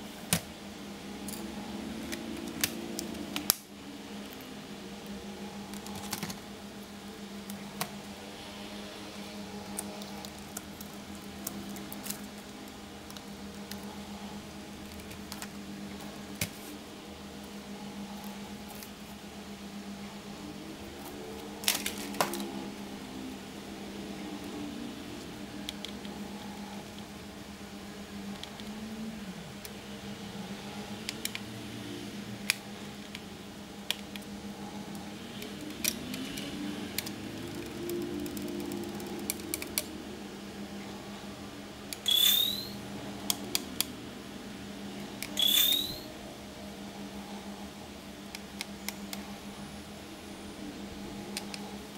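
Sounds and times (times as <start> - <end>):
steady low hum: 0.0 - 51.9.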